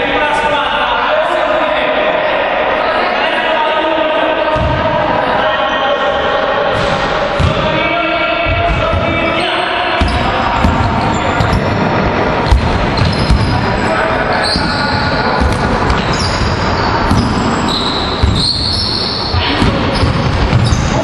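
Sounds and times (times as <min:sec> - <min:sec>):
basketballs bouncing on wood floor: 0:06.8 - 0:07.7, 0:10.0 - 0:13.7, 0:14.6 - 0:21.0
sneaker squeaks: 0:09.3 - 0:11.7, 0:12.4 - 0:21.0.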